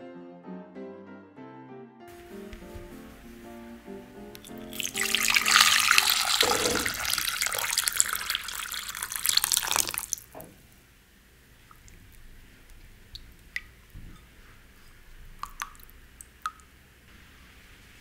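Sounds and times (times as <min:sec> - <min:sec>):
water pouring into bowl: 0:04.4 - 0:10.3, 0:15.4 - 0:16.5
small water splash: 0:04.4 - 0:10.4.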